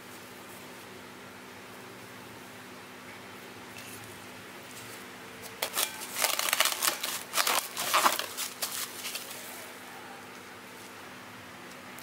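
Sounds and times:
plastic wrap crinkling: 5.4 - 9.7.

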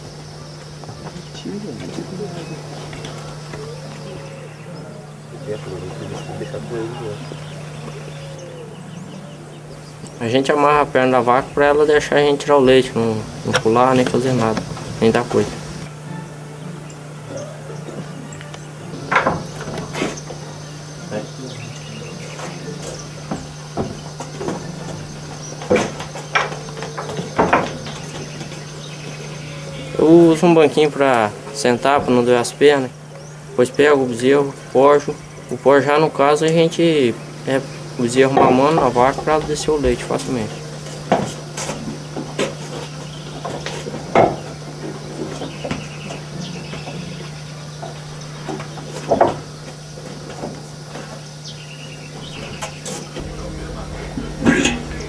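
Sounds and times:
small birds chirping: 0.0 - 55.0
steady low hum: 0.0 - 55.0
cattle knocking in wooden pen: 19.1 - 20.1, 22.4 - 29.0, 41.1 - 51.2.

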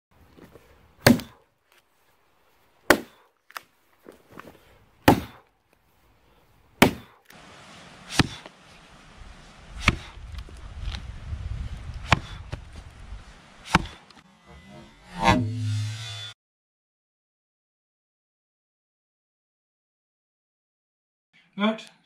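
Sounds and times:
axe chopping log: 1.0 - 1.4, 2.9 - 3.6, 5.0 - 5.4, 6.8 - 7.2, 8.1 - 8.6, 9.8 - 10.2, 12.0 - 12.6, 13.6 - 14.1.

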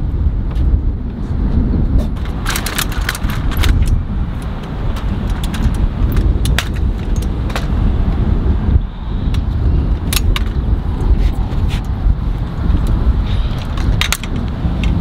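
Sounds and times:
steady low rumble: 0.0 - 15.0
metal walker clicking and rattling: 2.1 - 7.9, 10.0 - 15.0.

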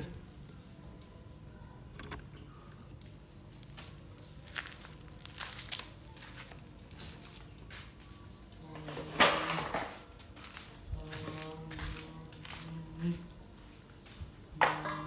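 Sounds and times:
rustling and crinkling: 1.9 - 8.1, 8.8 - 15.0
sharp crackles: 3.0 - 7.9.

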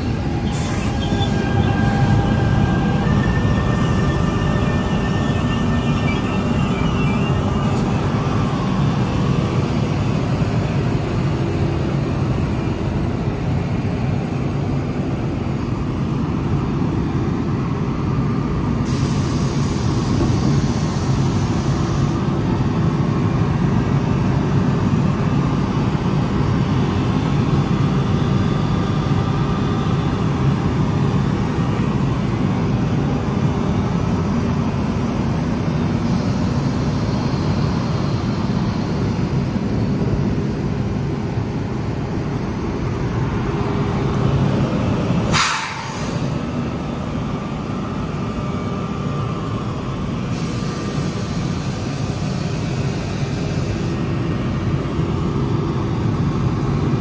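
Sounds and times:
train rumbling on rails: 0.0 - 57.0
brief hiss: 45.3 - 46.3.

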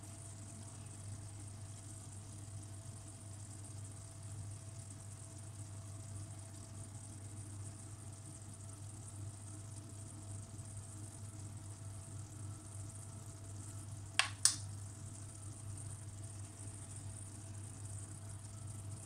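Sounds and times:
low hum with faint hiss: 0.0 - 19.0
sharp clicks: 14.2 - 14.6.

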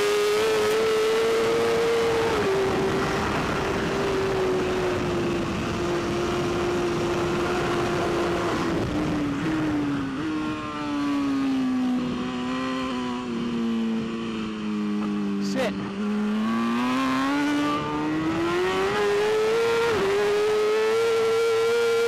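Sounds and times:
motorcycle downshifts: 0.0 - 22.0
motorcycle engine at high revs: 0.0 - 22.0
wind rush: 1.2 - 10.7.

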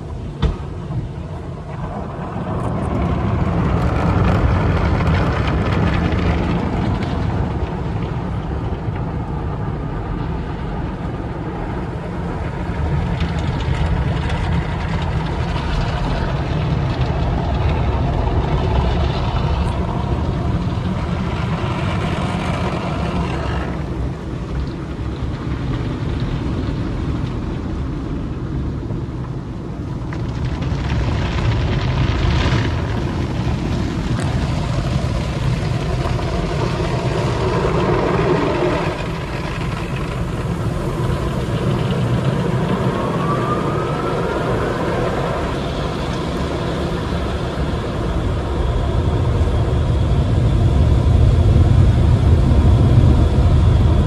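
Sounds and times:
car wash machinery running: 0.0 - 54.0
water spraying onto car: 29.8 - 48.9.

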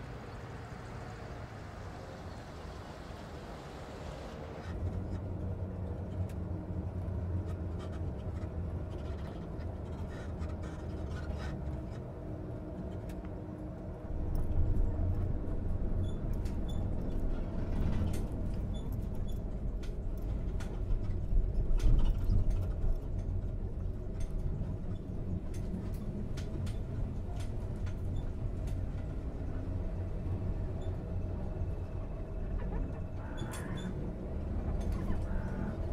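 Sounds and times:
light rattles and clicks: 4.7 - 12.1, 14.2 - 29.9.

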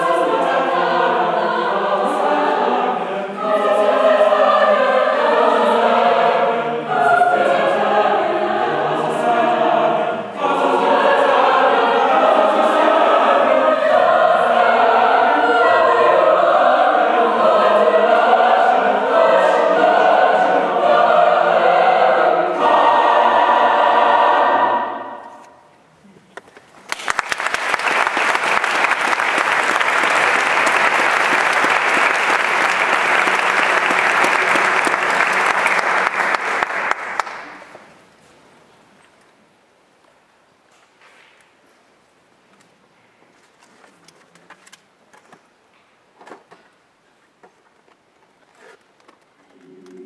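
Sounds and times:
mixed choir singing: 0.0 - 25.7, 29.3 - 37.1, 49.5 - 50.0
audience applause: 26.8 - 37.8.

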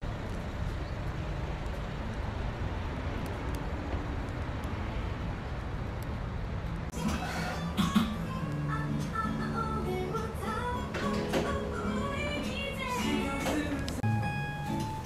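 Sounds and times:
low rumble of traffic: 0.0 - 15.0
music: 7.0 - 15.0.

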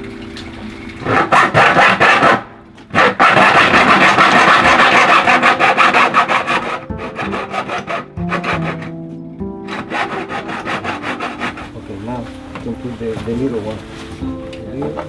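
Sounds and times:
hacksaw cutting metal pipe: 1.0 - 9.0, 9.6 - 11.8.

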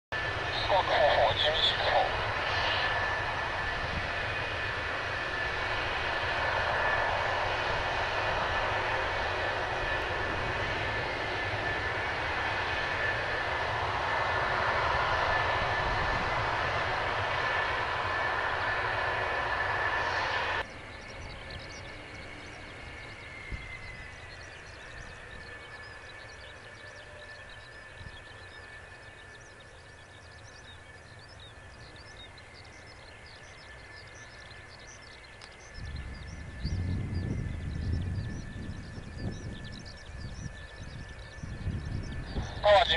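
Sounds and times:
jet engines whining: 0.1 - 42.9.

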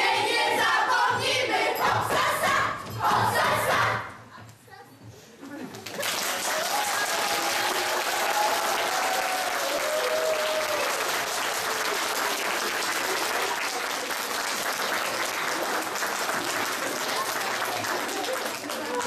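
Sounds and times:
audience applauding: 5.8 - 19.0.

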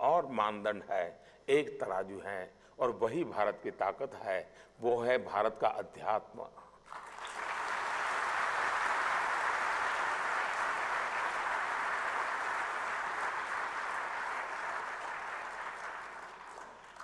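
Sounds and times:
audience applauding: 6.9 - 17.0.

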